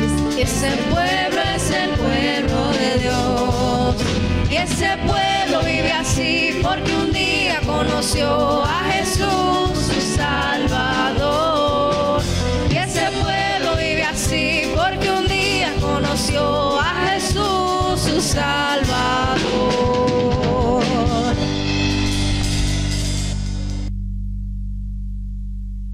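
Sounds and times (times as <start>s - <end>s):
drum kit: 0.0s - 23.9s
keyboard: 0.0s - 23.9s
young singers singing praise chorus: 0.4s - 12.2s.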